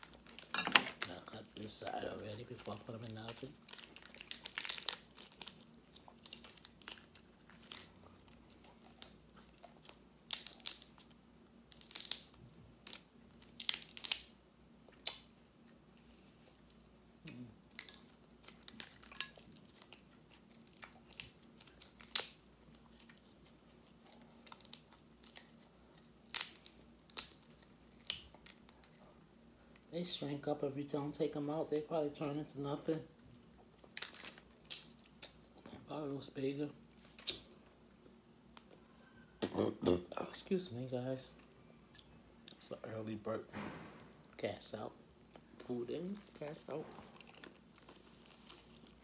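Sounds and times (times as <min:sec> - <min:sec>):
person crunching and chewing: 0:01.7 - 0:12.3, 0:14.9 - 0:29.2, 0:46.1 - 0:49.0.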